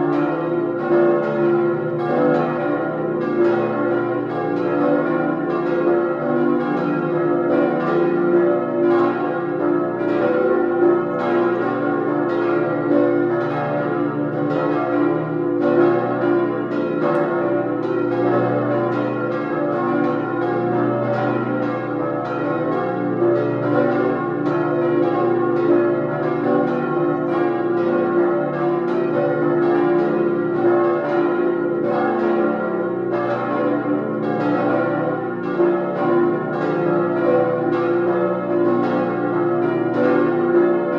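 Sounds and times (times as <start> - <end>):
church bells ringing: 0.0 - 40.9.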